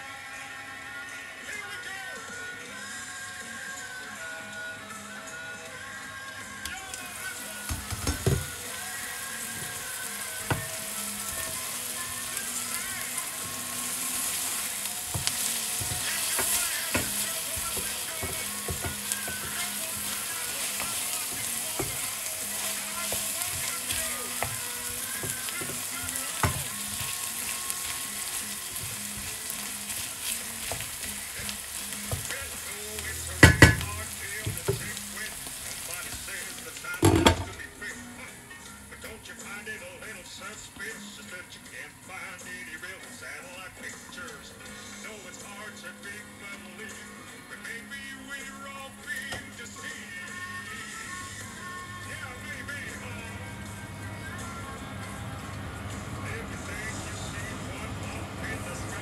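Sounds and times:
food sizzling in a pan: 6.5 - 38.2, 48.4 - 59.0
utensil knocking and scraping pan: 7.7 - 8.6, 15.1 - 27.2, 33.4 - 35.0, 37.0 - 37.6.

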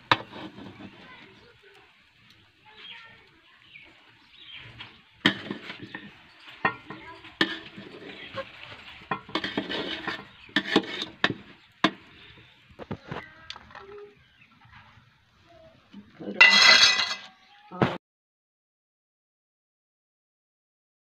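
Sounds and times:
metal spoon scraping pot: 0.1 - 1.0, 4.6 - 12.3.

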